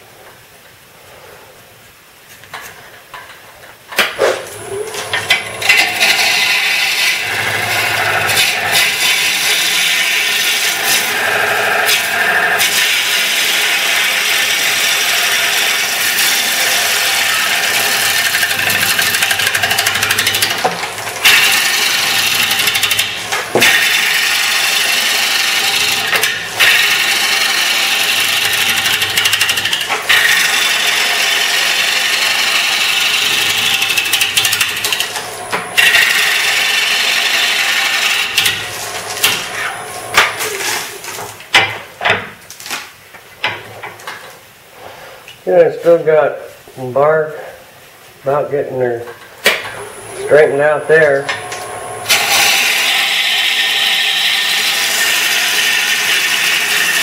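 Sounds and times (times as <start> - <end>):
lathe tool cutting wood hiss: 4.4 - 41.2, 49.8 - 57.0.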